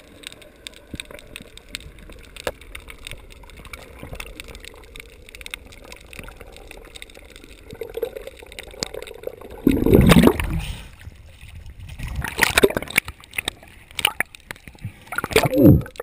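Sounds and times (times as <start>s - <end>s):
fine underwater crackling: 0.0s - 16.0s
gurgling rush of water: 5.6s - 16.0s.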